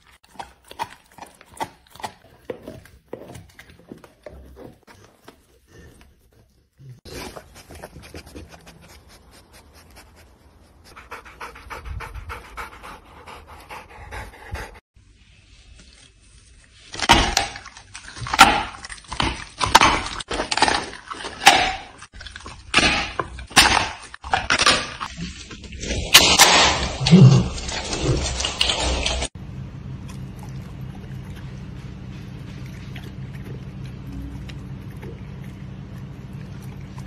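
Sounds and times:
wet chewing and clicking: 0.0 - 6.5, 30.0 - 37.0
dog chewing meat on a bone: 30.0 - 37.0.

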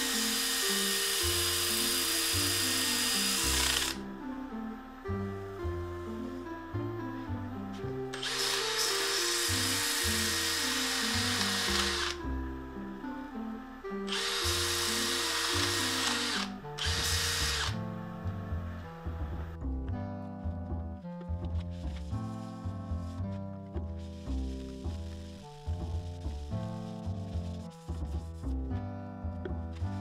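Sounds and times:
power tool running: 0.0 - 4.0, 8.2 - 12.2, 14.1 - 17.8
background music: 0.0 - 30.0.

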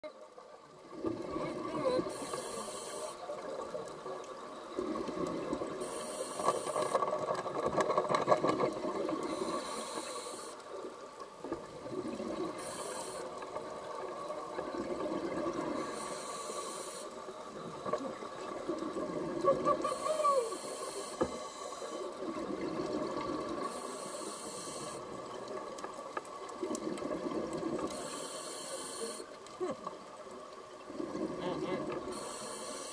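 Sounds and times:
scuba regulator breathing: 2.0 - 3.2, 5.8 - 7.0, 9.2 - 10.7, 12.5 - 13.4, 15.8 - 17.3, 19.8 - 22.1, 23.6 - 25.1, 27.9 - 29.3, 32.1 - 32.9
plastic bottle crackling underwater: 6.7 - 9.3.

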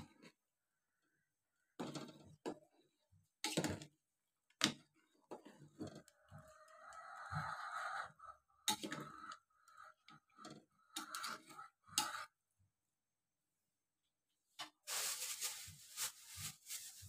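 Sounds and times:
ladle scraping metal pot: 10.4 - 12.1.

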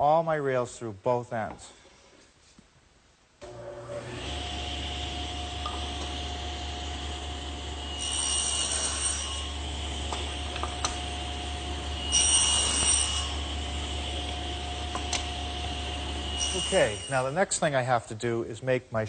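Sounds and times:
table saw running: 3.4 - 17.4
saw blade cutting wood: 5.7 - 17.5.

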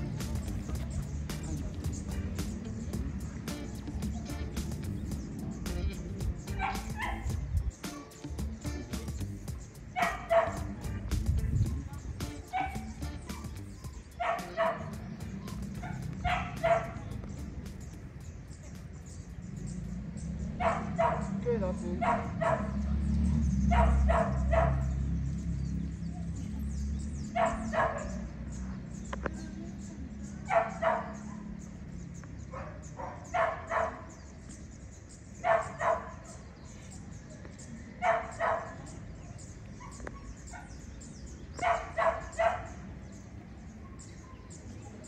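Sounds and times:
dog barking: 6.5 - 8.3, 9.9 - 10.8, 12.4 - 17.3, 20.5 - 23.0, 23.6 - 25.1, 27.3 - 28.8, 30.4 - 31.7, 32.5 - 34.3, 35.4 - 36.5, 38.0 - 40.9, 41.6 - 43.0, 43.7 - 44.9.

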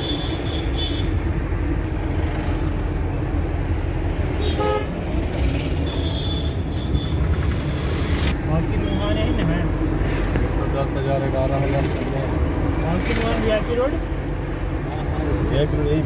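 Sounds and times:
engine and road rumble: 0.0 - 16.0
vehicle horn toot: 4.4 - 4.9.

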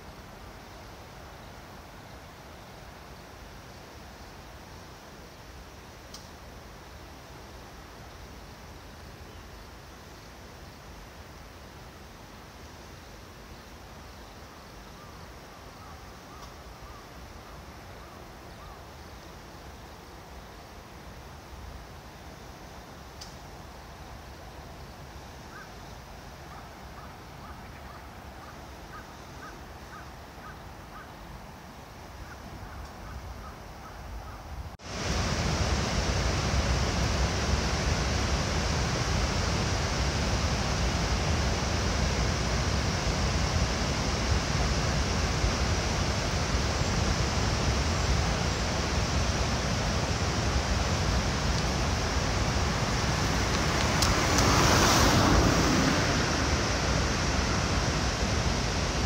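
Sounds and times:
faint outdoor hiss: 0.0 - 59.0
water rushing over a weir: 34.8 - 59.0.

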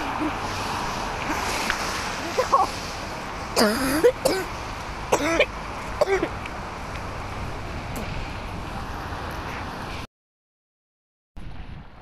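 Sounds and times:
wind and rain hiss: 0.0 - 10.1, 11.4 - 12.0.

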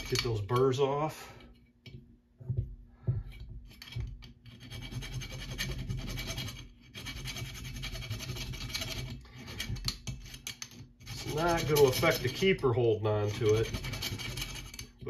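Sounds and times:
file rasping on metal: 3.8 - 12.6, 13.2 - 15.0.

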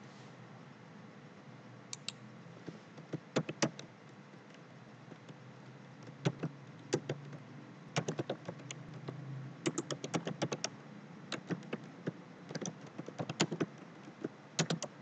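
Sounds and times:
typing on computer keyboard: 3.0 - 3.9, 6.0 - 7.4, 8.0 - 15.0.

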